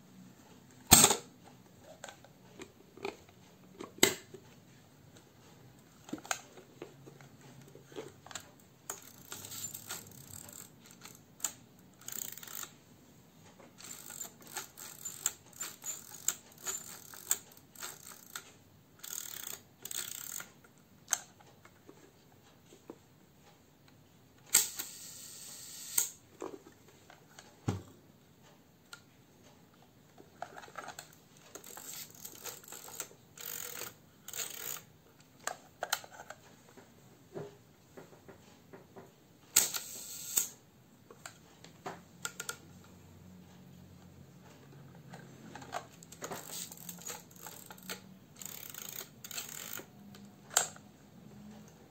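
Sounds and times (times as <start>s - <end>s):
camera crank clicking and ratcheting: 0.9s - 1.2s, 8.2s - 12.7s, 13.8s - 20.5s, 24.5s - 26.2s, 30.4s - 36.3s, 39.6s - 40.6s, 45.5s - 50.8s.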